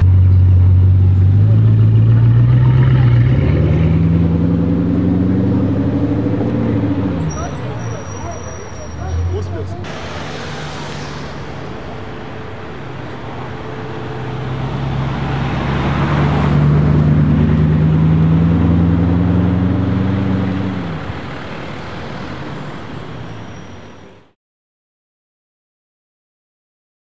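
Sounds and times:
car engine driving past: 0:00.0 - 0:24.3.

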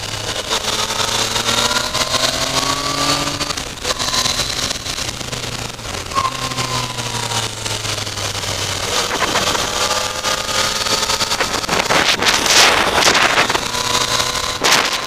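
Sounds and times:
motorcycle engine running: 0:00.0 - 0:15.0
wind buffeting microphone: 0:10.7 - 0:15.0.

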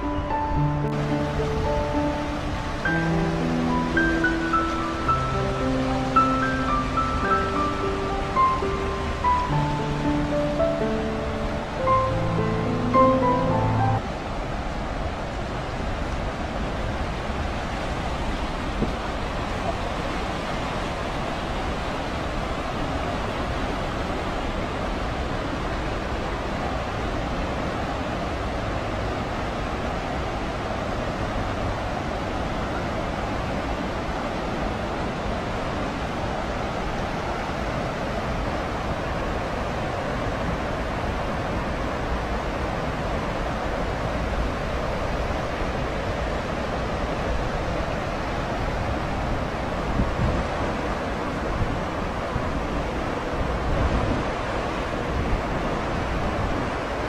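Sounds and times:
stream water over rocks: 0:00.0 - 0:57.0
wind rumble on microphone: 0:14.0 - 0:57.0.

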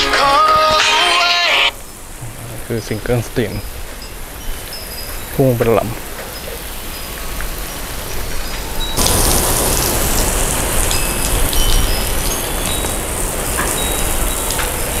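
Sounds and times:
water splashing onto concrete: 0:09.0 - 0:15.0.

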